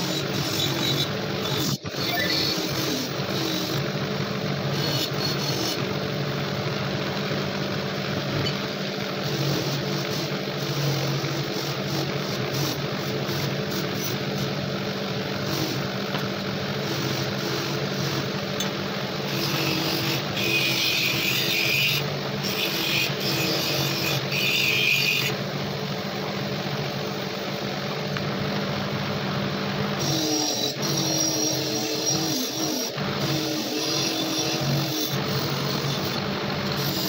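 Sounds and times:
steel part rasping on wheel: 0:00.0 - 0:02.8, 0:04.8 - 0:05.8, 0:09.2 - 0:14.5, 0:19.3 - 0:25.4, 0:30.0 - 0:37.0
electric motor humming: 0:00.0 - 0:37.0.

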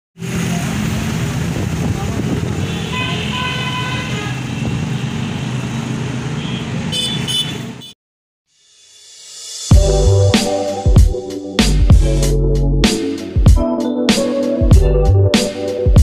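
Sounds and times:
street traffic: 0:00.2 - 0:08.0
vehicle horn toots: 0:02.6 - 0:04.5, 0:06.4 - 0:08.0.

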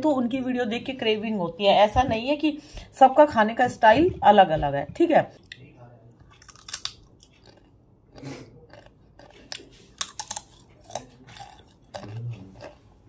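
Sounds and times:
person chewing hard clay: 0:05.4 - 0:13.0.

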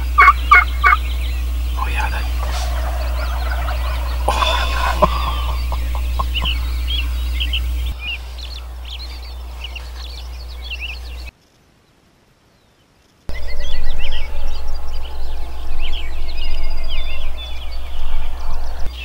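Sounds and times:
low outdoor rumble: 0:00.0 - 0:11.3, 0:13.3 - 0:19.0
songbirds chirping: 0:00.0 - 0:19.0.

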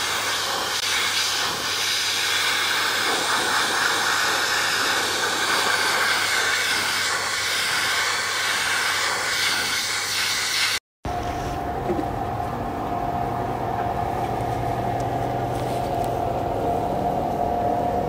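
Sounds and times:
vacuum cleaner suction hiss: 0:00.0 - 0:11.7.

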